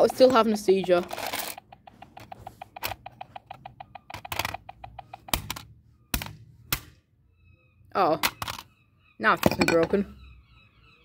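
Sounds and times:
walkie-talkie speaker clicking: 0:00.0 - 0:06.3.

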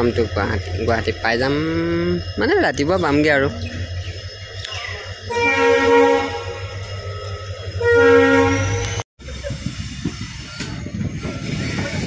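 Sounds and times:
railway coach rumbling and rattling: 0:00.0 - 0:12.0
train horn blowing: 0:05.3 - 0:09.0.

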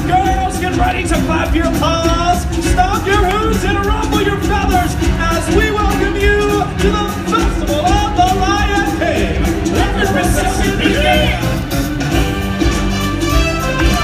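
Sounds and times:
steady drum beat: 0:00.0 - 0:14.0
voices singing: 0:01.1 - 0:12.0.

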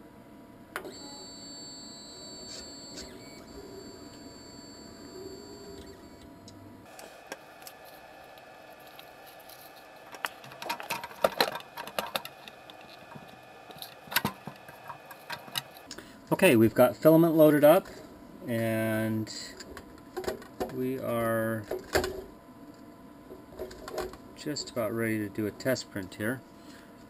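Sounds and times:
low hum: 0:00.0 - 0:16.3
faint high whine: 0:00.0 - 0:20.0.

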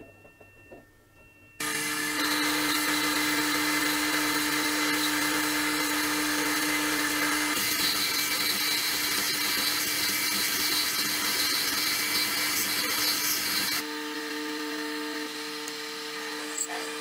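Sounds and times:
lathe cutting hiss: 0:01.6 - 0:13.8
lathe motor hum: 0:01.6 - 0:17.0.

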